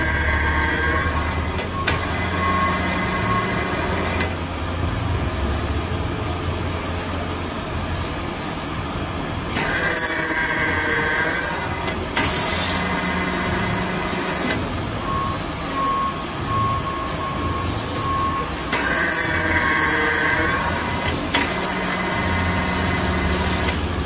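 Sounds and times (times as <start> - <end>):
repeating beep: 0.0 - 3.6, 9.7 - 11.3, 15.1 - 20.8
high ringing cutting noise: 0.0 - 4.2, 9.6 - 14.4, 18.4 - 23.6
milling machine drone: 18.7 - 21.0.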